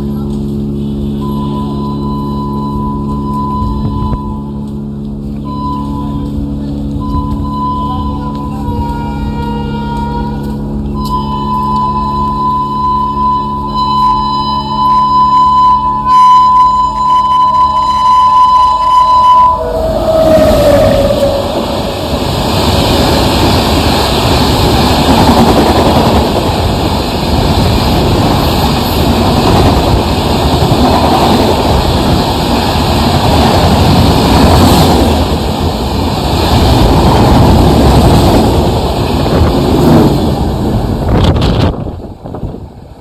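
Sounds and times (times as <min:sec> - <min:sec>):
train wheels rumbling on rails: 0:00.0 - 0:43.0
wind noise: 0:18.2 - 0:43.0.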